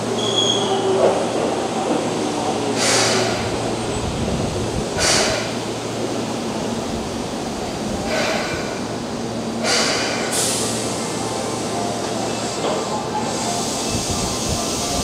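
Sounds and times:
electric train hum: 0.0 - 15.0
air hiss bursts: 2.8 - 3.6, 5.0 - 5.6, 9.6 - 11.1, 13.3 - 15.0.

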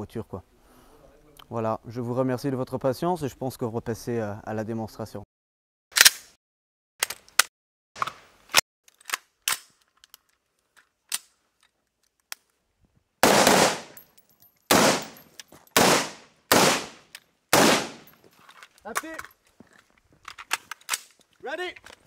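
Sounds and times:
gun loading clicks: 6.0 - 6.2, 8.9 - 12.6, 18.0 - 22.0
rifle shots ringing: 13.2 - 14.0, 14.7 - 18.2.

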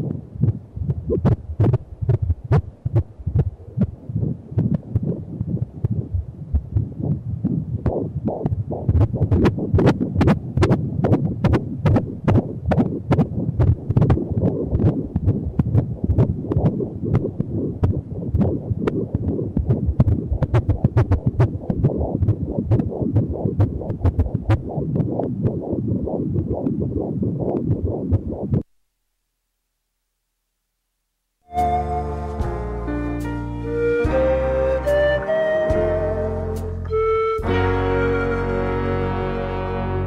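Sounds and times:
fetal heartbeat whooshing pulse: 0.0 - 28.7.

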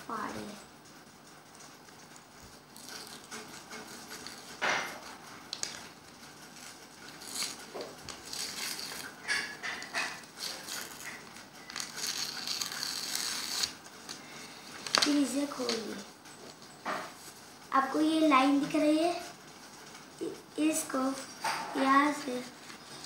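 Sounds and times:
paper crinkling and tearing: 10.4 - 14.2.

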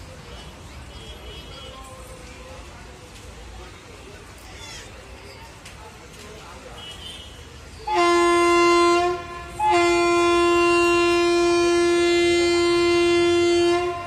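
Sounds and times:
locomotive horn blasts: 7.9 - 14.0.

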